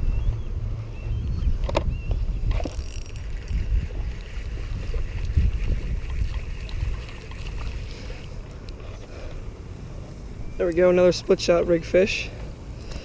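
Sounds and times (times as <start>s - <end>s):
wind rumbling on microphone: 0.0s - 13.0s
fishing reel whirring: 2.5s - 8.3s.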